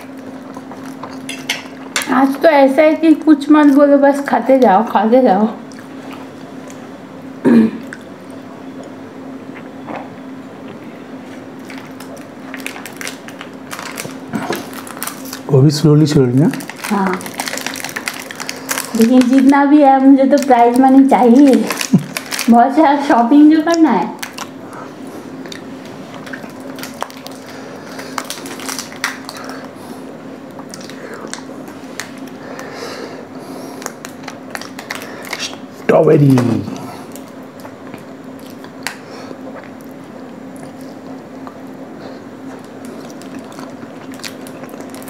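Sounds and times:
chewing and mouth sounds: 0.0 - 2.0, 25.4 - 29.8, 30.5 - 32.4, 36.7 - 41.7, 42.4 - 45.0
steady low hum: 0.0 - 45.0
plastic sleeve crinkling: 11.6 - 24.6, 26.1 - 29.7, 33.8 - 37.4, 42.6 - 45.0.

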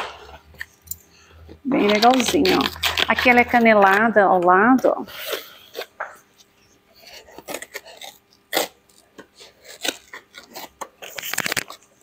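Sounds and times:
scissors cutting packing tape: 1.7 - 4.5, 7.0 - 12.0.

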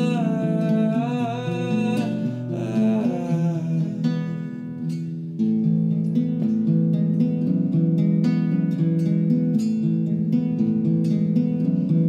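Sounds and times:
man singing: 0.0 - 4.5
acoustic guitar playing: 0.0 - 12.0.

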